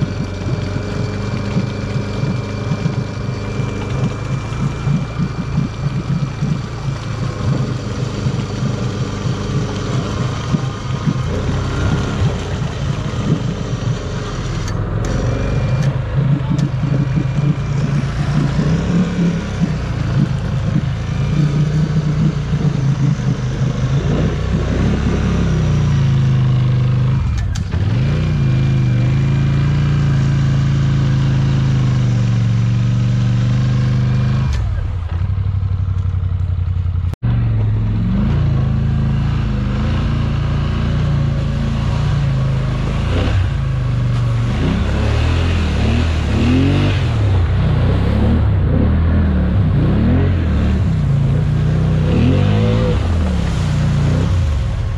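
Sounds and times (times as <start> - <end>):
atv engine revving: 0.0 - 54.9.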